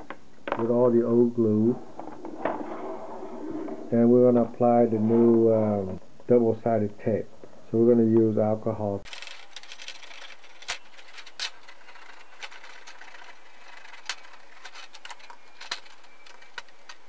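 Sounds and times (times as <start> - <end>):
steady low hiss: 0.0 - 17.0
fingers scratching plastic: 9.1 - 17.0.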